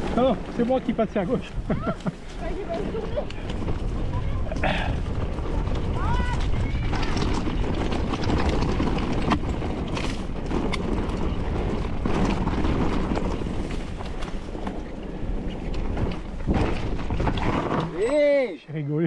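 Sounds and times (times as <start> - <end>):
wind buffeting microphone: 0.0 - 18.2
bike jolting knocks: 4.6 - 18.1.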